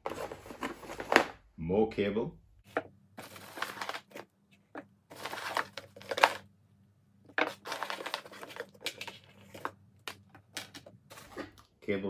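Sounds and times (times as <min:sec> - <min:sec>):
packaging crinkling and rustling: 0:00.0 - 0:01.4, 0:02.7 - 0:06.4, 0:07.3 - 0:11.6.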